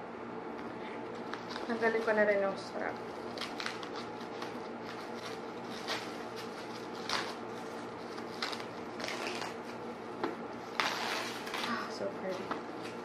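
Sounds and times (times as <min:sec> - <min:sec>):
steady low hum: 0:00.0 - 0:13.0
wrapping crinkles: 0:01.1 - 0:09.8
wrapping rustling: 0:01.1 - 0:13.0.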